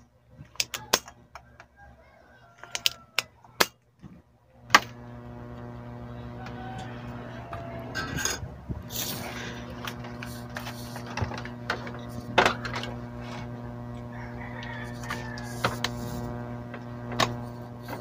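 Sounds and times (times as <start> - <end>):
low electrical hum: 0.0 - 18.0
rooster crowing: 0.8 - 3.6, 5.9 - 8.4, 13.9 - 17.0
hands clicking and knocking on wiring: 9.6 - 18.0.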